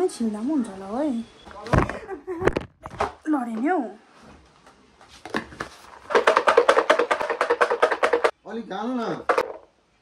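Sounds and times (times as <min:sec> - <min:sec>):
garlic rattling in plastic jar: 0:06.1 - 0:08.3.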